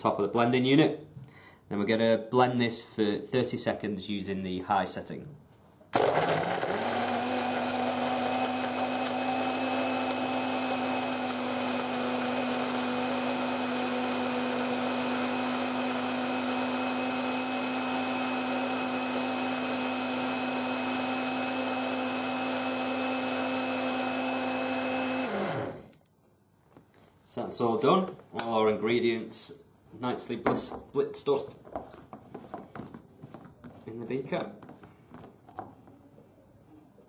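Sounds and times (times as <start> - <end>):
blender motor running: 6.0 - 25.9.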